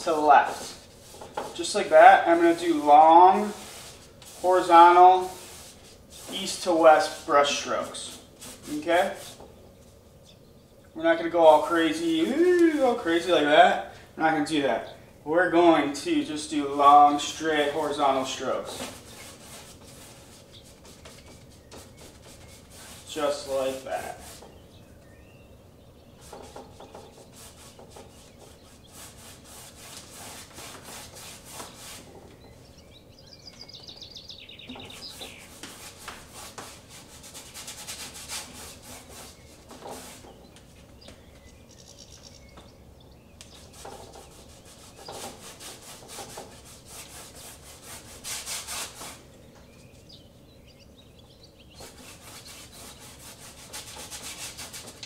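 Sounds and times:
paintbrush scrubbing on canvas: 0:00.0 - 0:09.5, 0:16.4 - 0:24.7, 0:26.2 - 0:32.5, 0:34.4 - 0:41.1, 0:43.5 - 0:49.2, 0:51.7 - 0:55.0.

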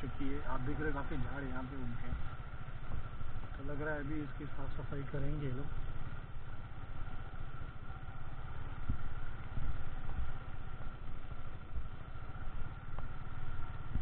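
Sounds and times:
motorcycle engine throbbing: 0:00.0 - 0:14.0
wind noise: 0:08.8 - 0:10.5, 0:13.8 - 0:14.0.

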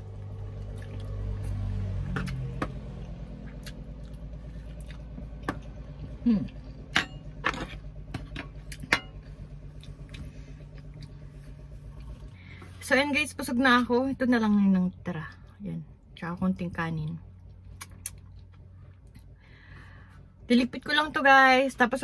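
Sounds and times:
low hum inside car: 0:00.0 - 0:22.0
chewing and mouth smacks: 0:00.5 - 0:02.5, 0:03.4 - 0:05.8, 0:17.4 - 0:19.3.

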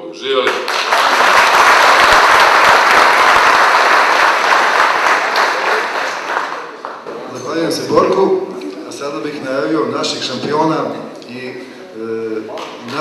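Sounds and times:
audience applauding: 0:00.4 - 0:07.3.

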